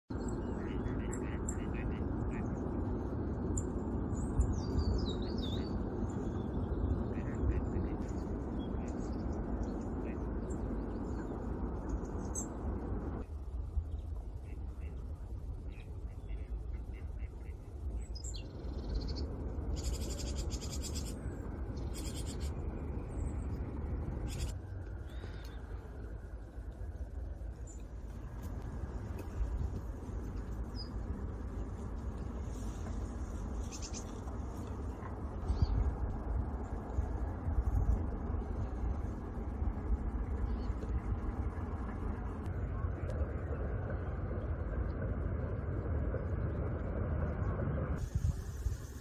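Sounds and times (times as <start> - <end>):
low background rumble: 0.1 - 49.0
small songbird chirping and warbling: 3.5 - 12.6, 15.7 - 23.6, 24.2 - 25.8, 30.6 - 31.6, 33.6 - 34.2.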